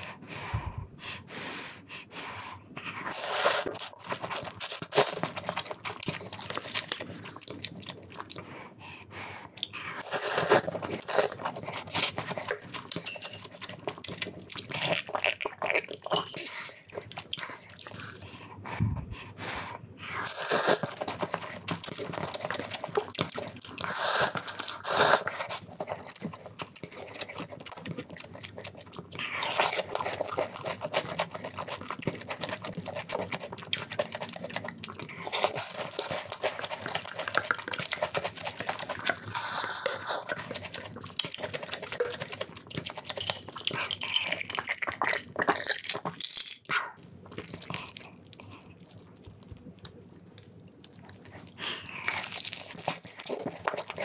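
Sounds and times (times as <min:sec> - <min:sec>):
noodles slurped: 0:02.8 - 0:12.8, 0:20.0 - 0:46.2
chewing with wet mouth clicks: 0:03.7 - 0:18.6, 0:20.7 - 0:54.0.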